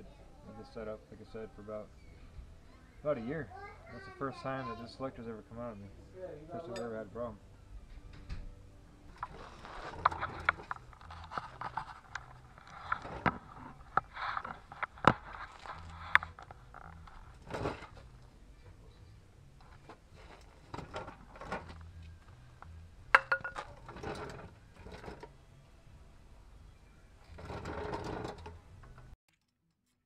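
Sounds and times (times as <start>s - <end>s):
metal parts clinking and rattling: 19.6s - 25.3s.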